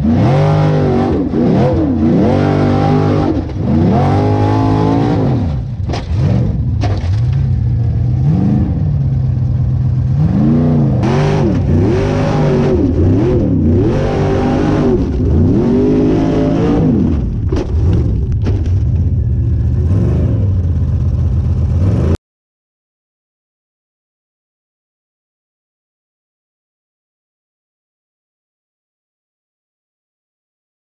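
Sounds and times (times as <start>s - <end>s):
buggy engine revving hard: 0.0s - 22.2s.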